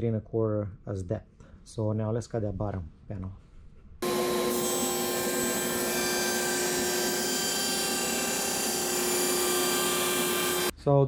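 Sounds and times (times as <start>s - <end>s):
saw blade cutting plywood: 4.0s - 10.7s.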